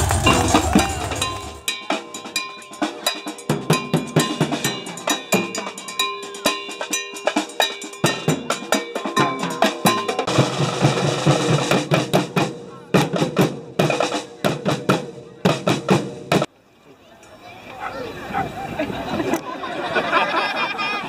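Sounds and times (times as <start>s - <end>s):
bass and snare drums playing: 0.0s - 2.4s, 3.1s - 16.5s.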